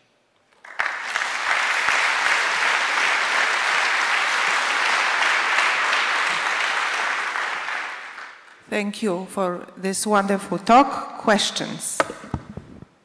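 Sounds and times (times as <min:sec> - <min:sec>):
audience applauding: 0:00.5 - 0:08.6.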